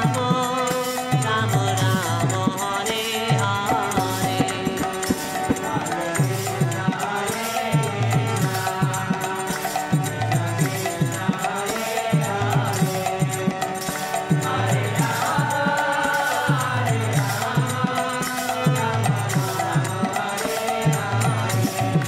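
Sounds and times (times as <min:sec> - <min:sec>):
chanted singing: 0:00.0 - 0:22.0
steady drum beat: 0:00.0 - 0:22.0.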